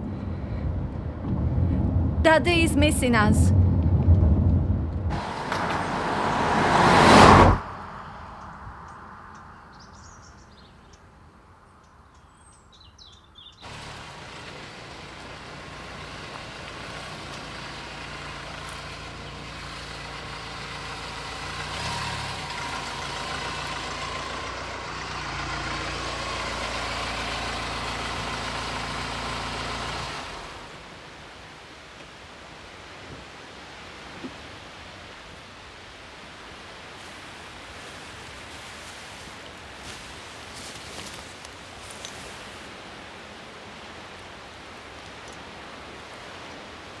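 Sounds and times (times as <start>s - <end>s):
car engine hum and tyre noise: 0.0s - 47.0s
car passing by: 3.3s - 10.4s, 13.6s - 31.0s.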